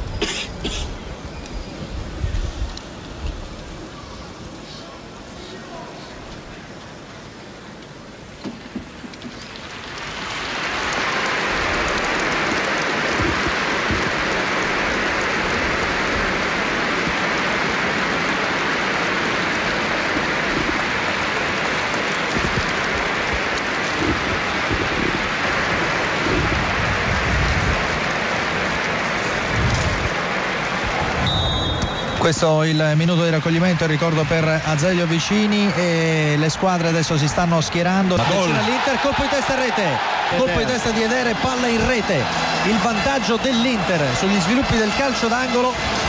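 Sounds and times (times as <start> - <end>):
stadium crowd applauding: 9.6 - 46.0.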